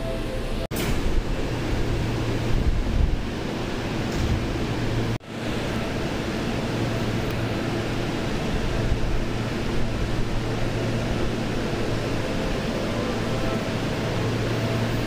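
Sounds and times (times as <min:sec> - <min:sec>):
electric train equipment humming: 0:00.0 - 0:15.0.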